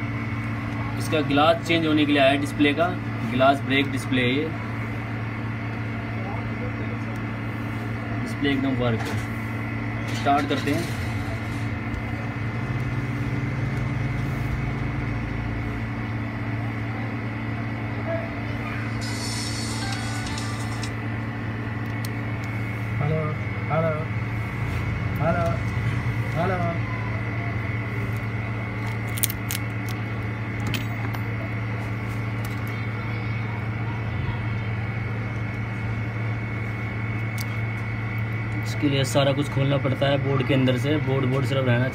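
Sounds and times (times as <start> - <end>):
high whine: 0.0 - 41.9
low mechanical hum: 0.0 - 41.9
fingers unsnapping phone parts: 28.1 - 30.0.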